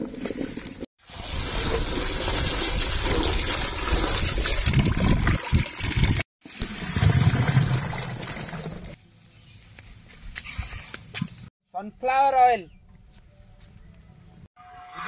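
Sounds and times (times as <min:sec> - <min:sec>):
water pouring and splashing: 0:00.0 - 0:09.0.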